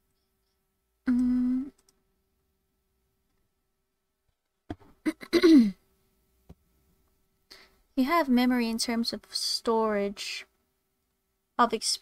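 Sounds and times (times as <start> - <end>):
person humming: 1.1 - 1.8.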